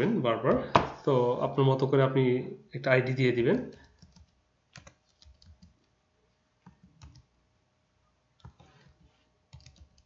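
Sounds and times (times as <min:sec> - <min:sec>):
typing on a computer keyboard: 0:03.7 - 0:05.9, 0:06.6 - 0:07.3, 0:08.4 - 0:10.0.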